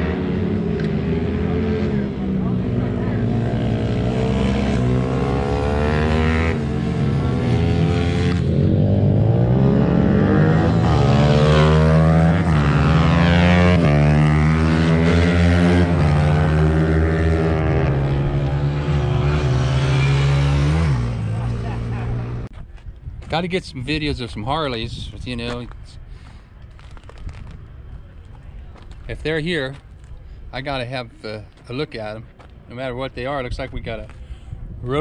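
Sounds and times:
motorcycle engines revving: 0.0 - 22.5.

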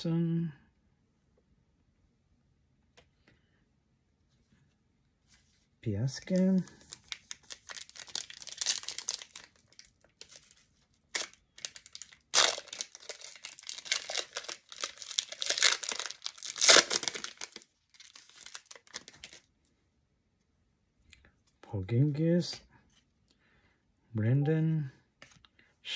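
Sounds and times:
foil wrapper tearing and crinkling: 6.6 - 19.5.

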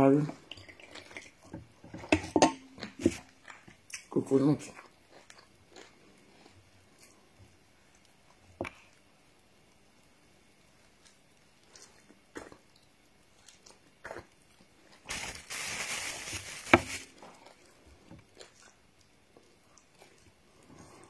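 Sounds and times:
chewing crunchy coconut: 4.7 - 7.3, 11.0 - 15.0, 17.0 - 21.0.

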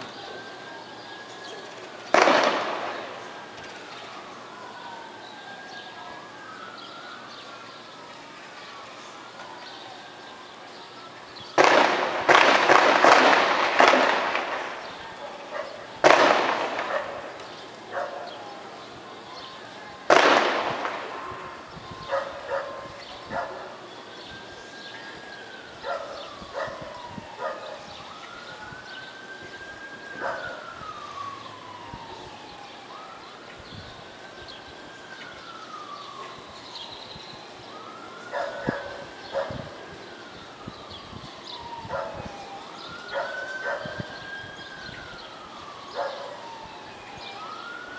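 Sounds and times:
distant siren wailing: 0.0 - 47.9
echoing gunshots: 2.1 - 3.2, 11.6 - 14.9, 16.0 - 17.2, 20.1 - 21.3.

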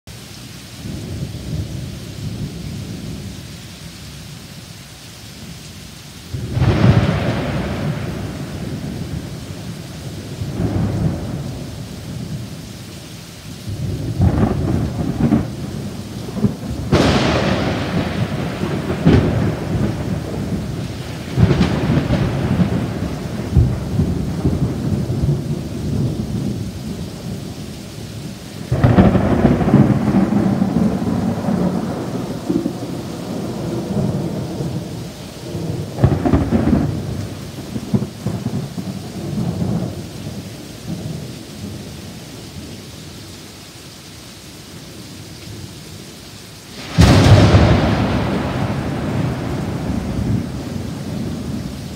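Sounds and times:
rain falling steadily: 0.0 - 51.9
thunder cracking and rumbling: 6.3 - 12.6, 13.7 - 42.7, 46.8 - 51.9.

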